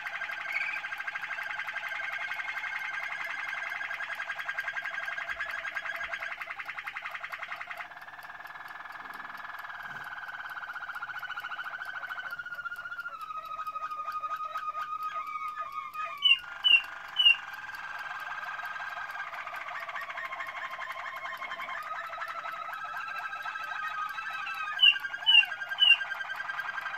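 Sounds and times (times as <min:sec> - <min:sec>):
canary singing trills: 0:00.0 - 0:26.9
loud high bird notes: 0:15.1 - 0:17.5, 0:23.4 - 0:26.8.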